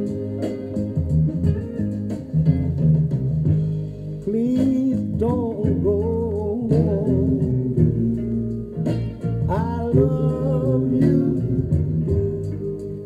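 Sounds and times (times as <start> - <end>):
soul music on a turntable: 0.0 - 13.0
person singing: 4.3 - 8.6, 9.4 - 13.0.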